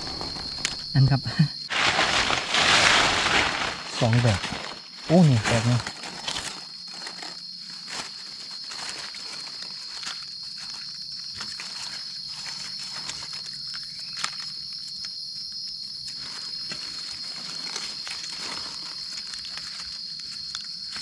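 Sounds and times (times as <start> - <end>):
footsteps on dry leaf litter: 0.0 - 0.6, 1.7 - 13.6, 16.1 - 21.0
insects droning: 0.0 - 21.0
sharp crack: 1.7 - 4.6.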